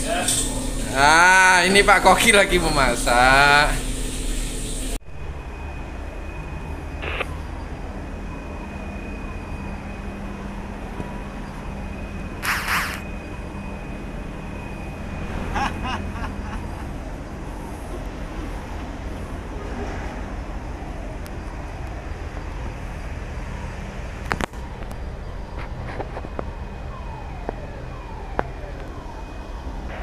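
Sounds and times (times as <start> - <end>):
ship machinery rumble: 0.0 - 30.0
faint high steady tone: 5.1 - 19.2.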